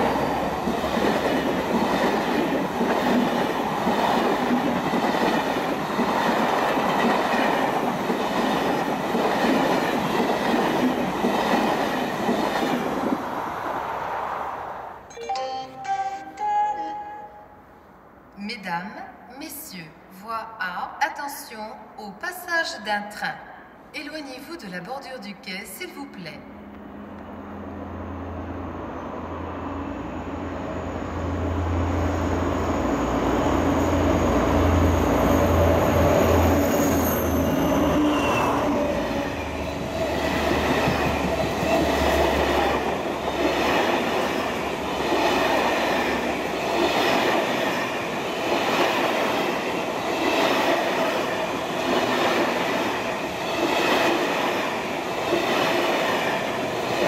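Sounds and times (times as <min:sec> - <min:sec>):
train coaches rumbling past: 0:00.0 - 0:18.3, 0:26.4 - 0:57.0
high locomotive whine: 0:00.0 - 0:18.4, 0:26.4 - 0:57.0
diesel locomotive engine hum: 0:26.5 - 0:57.0.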